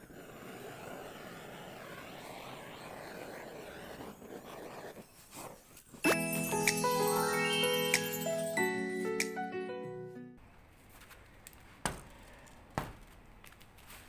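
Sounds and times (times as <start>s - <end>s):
gas torch flame hissing: 0.0s - 6.1s
bright music jingle with chimes: 6.0s - 10.4s.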